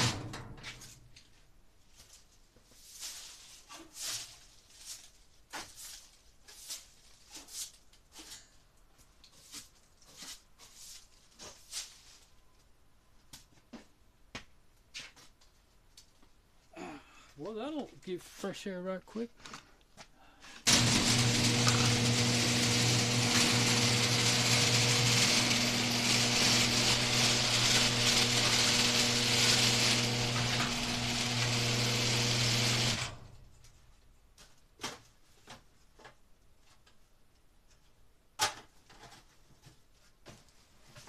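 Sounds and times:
garage door motor hum: 0.0 - 0.6, 20.7 - 33.5.

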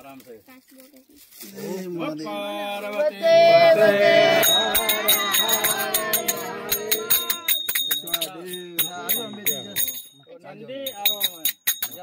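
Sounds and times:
people calling out: 3.2 - 9.9
hand bells ringing: 4.3 - 12.0.

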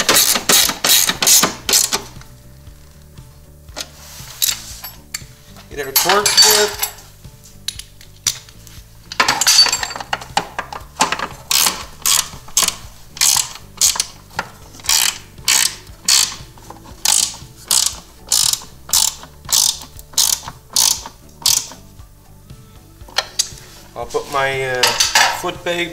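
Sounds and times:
socket ratchet clicking: 0.0 - 2.3, 7.6 - 21.9.

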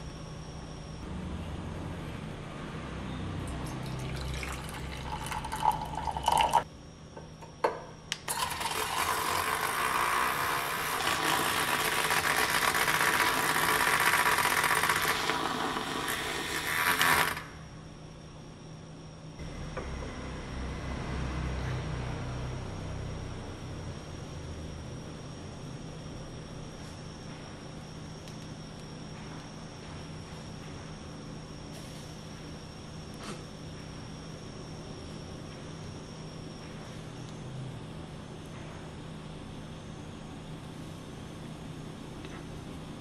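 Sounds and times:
milk frother whining: 3.8 - 6.6, 8.2 - 17.6.

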